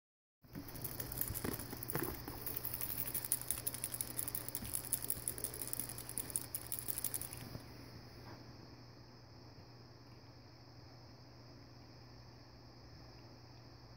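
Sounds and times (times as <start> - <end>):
guinea pig licking water spout: 0.5 - 7.4.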